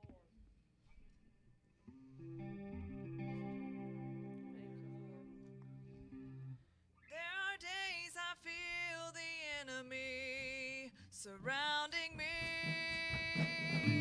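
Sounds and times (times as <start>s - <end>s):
woman singing into a microphone: 7.1s - 14.0s.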